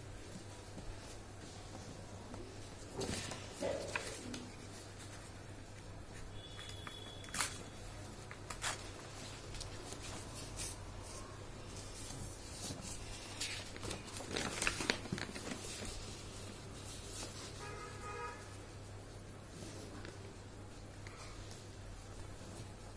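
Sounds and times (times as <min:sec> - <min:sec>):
paper crinkling and rustling: 0:00.3 - 0:17.7.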